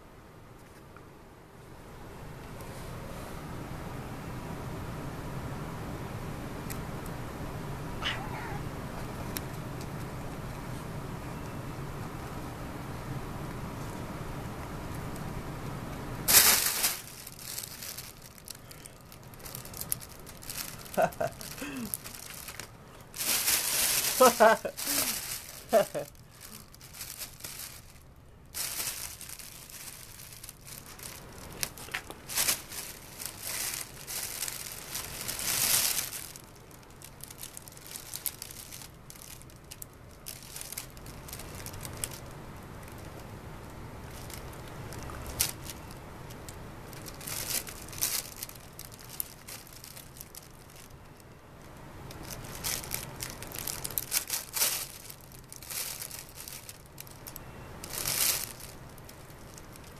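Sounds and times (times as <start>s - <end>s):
fabric tunnel rustling and crinkling: 16.2s - 59.9s.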